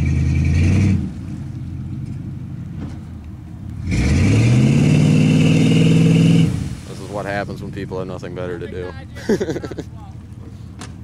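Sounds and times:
snowmobile engine revving: 0:03.8 - 0:08.6.

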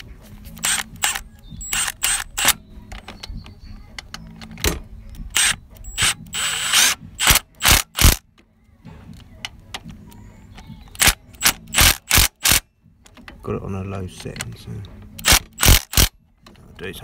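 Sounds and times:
ratchet clicking: 0:05.3 - 0:08.2, 0:11.0 - 0:12.6, 0:15.2 - 0:16.1.

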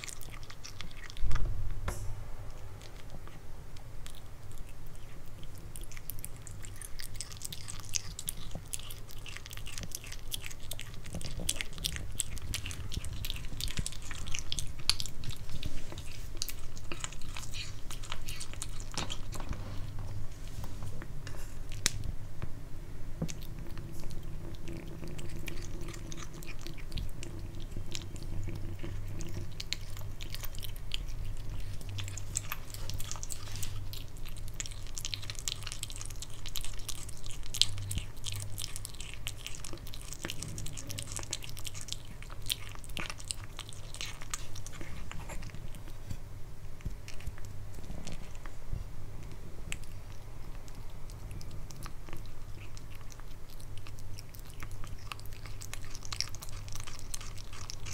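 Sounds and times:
low hum: 0:00.0 - 0:06.8
kitten chewing meat: 0:00.0 - 0:57.9.

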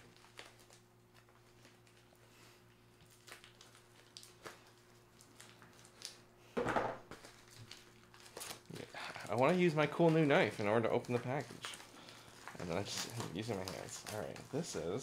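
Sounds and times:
faint steady hum: 0:00.0 - 0:15.0
knife scratching plastic package: 0:08.2 - 0:15.0.

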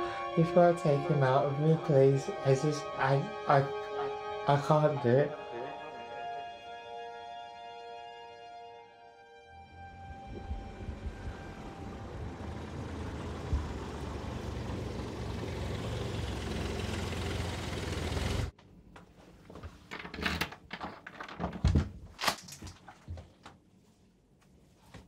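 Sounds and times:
car road and engine rumble: 0:09.6 - 0:18.6.

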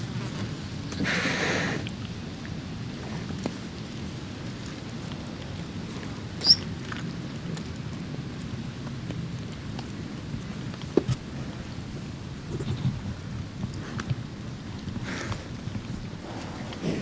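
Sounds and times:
wind rumble on microphone: 0:01.8 - 0:17.0
high bird chirp: 0:06.4 - 0:06.6.

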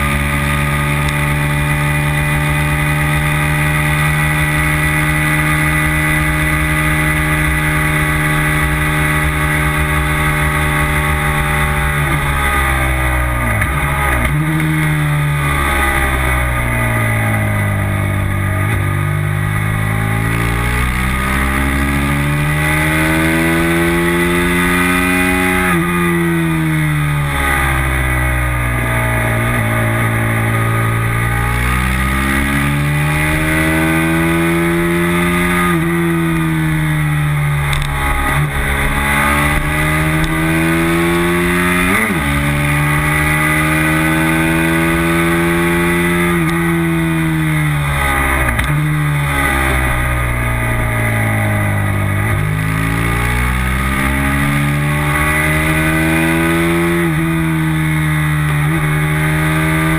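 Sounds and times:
racing motorcycle engine: 0:00.0 - 0:59.9.

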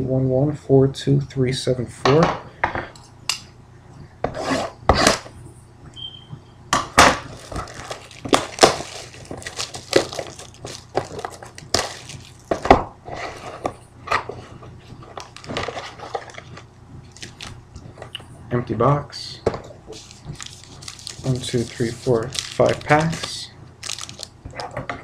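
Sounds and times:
plastic wrap crinkling and tearing: 0:07.2 - 0:12.7, 0:15.2 - 0:17.6, 0:19.9 - 0:24.7.

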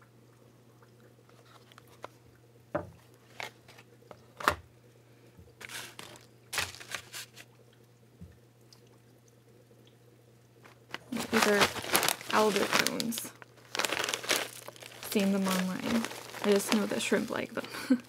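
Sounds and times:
packaging rustling and crinkling: 0:03.2 - 0:03.9, 0:05.6 - 0:07.5, 0:10.6 - 0:18.0
items moved on tabletop: 0:05.6 - 0:07.4.

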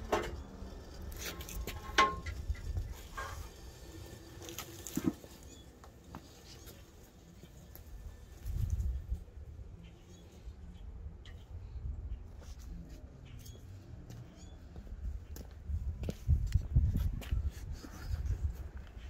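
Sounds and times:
metal knocks and clanks: 0:00.0 - 0:03.8
ringing metal clank: 0:01.5 - 0:03.5.

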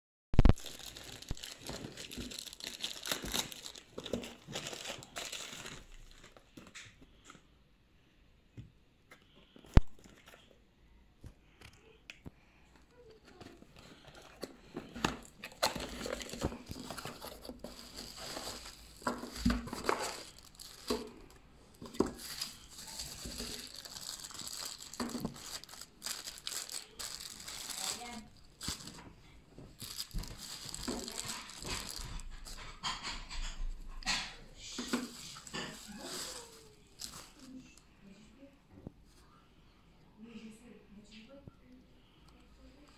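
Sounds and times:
plastic bag crinkling and tearing: 0:00.4 - 0:06.8, 0:14.0 - 0:29.1, 0:29.7 - 0:33.4, 0:34.9 - 0:37.8
cardboard box and plastic rustling: 0:00.4 - 0:07.4, 0:13.0 - 0:37.8.

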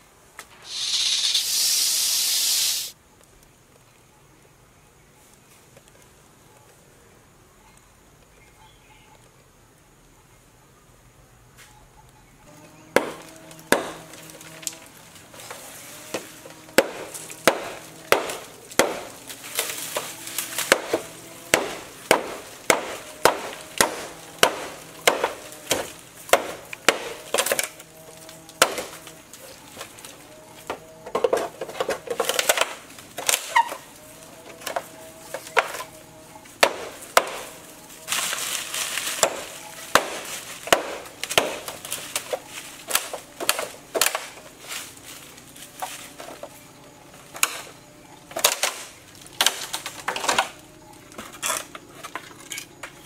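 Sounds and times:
rustling: 0:00.4 - 0:03.0, 0:31.4 - 0:46.6
machete chopping bamboo: 0:12.9 - 0:14.5, 0:15.5 - 0:29.1, 0:30.7 - 0:33.9, 0:34.6 - 0:36.0, 0:36.6 - 0:44.4, 0:48.3 - 0:50.6.

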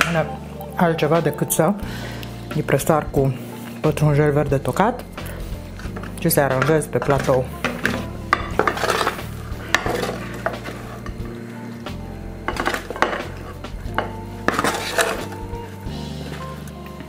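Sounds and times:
wooden spoon scraping metal tray: 0:05.8 - 0:11.4, 0:12.4 - 0:17.0.

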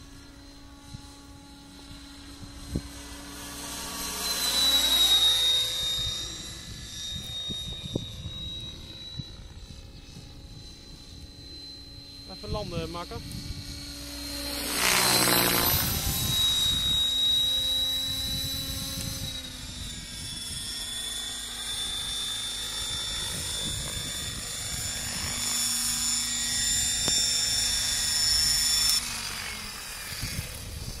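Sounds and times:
rc helicopter motor whine: 0:00.0 - 0:31.0
rotor blades swishing: 0:11.0 - 0:19.8.

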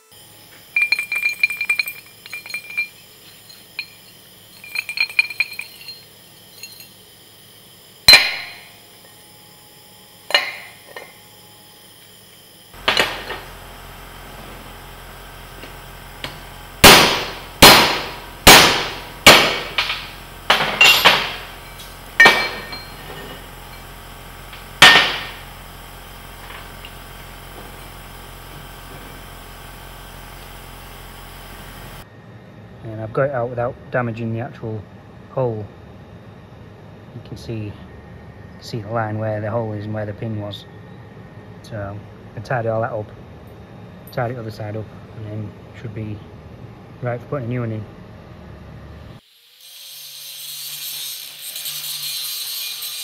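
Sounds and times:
light metallic clinking: 0:00.7 - 0:07.0
hammer striking steel: 0:08.1 - 0:08.7, 0:10.3 - 0:11.1, 0:12.8 - 0:13.4, 0:16.2 - 0:23.4, 0:24.8 - 0:25.4.

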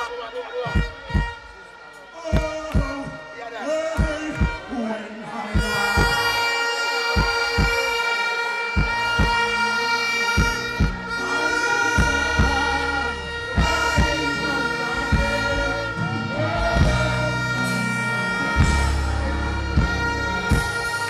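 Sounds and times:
long held synth note: 0:00.0 - 0:21.0
kick drum beat: 0:04.0 - 0:04.7, 0:05.6 - 0:06.4, 0:07.2 - 0:07.9, 0:08.8 - 0:09.5, 0:10.4 - 0:11.1, 0:12.0 - 0:12.7, 0:13.6 - 0:14.3
heavy bass line: 0:08.8 - 0:21.0.

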